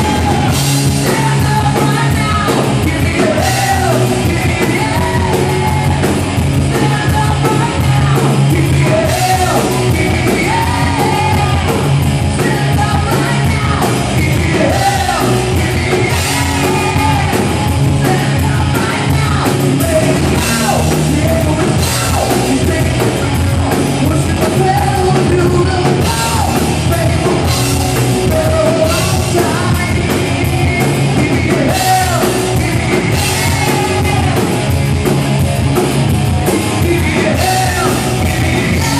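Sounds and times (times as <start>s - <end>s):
man singing: 0.0s - 35.0s, 36.4s - 38.9s
bass guitar: 0.0s - 38.9s
drum kit: 0.0s - 38.9s
electric guitars: 0.0s - 38.9s.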